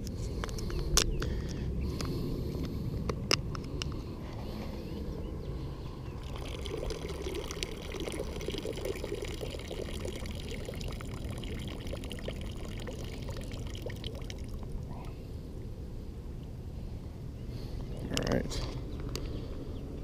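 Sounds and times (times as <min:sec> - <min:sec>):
water trickling into river: 0:05.8 - 0:15.8.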